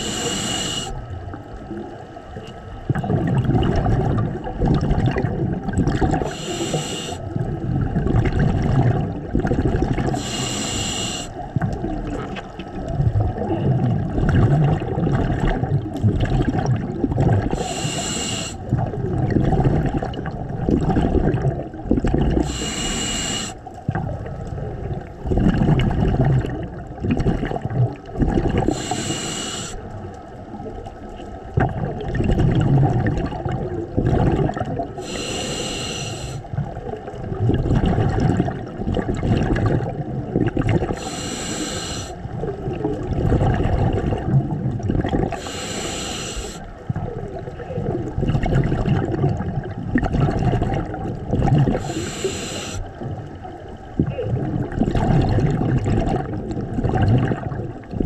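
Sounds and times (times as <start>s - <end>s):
regulator inhale hiss: 0.0s - 1.0s, 6.2s - 7.3s, 10.1s - 11.4s, 17.5s - 18.7s, 22.4s - 23.7s, 28.7s - 29.9s, 35.0s - 36.5s, 40.9s - 42.3s, 45.3s - 46.8s, 51.8s - 52.9s
exhaled air bubbling: 0.0s - 58.0s.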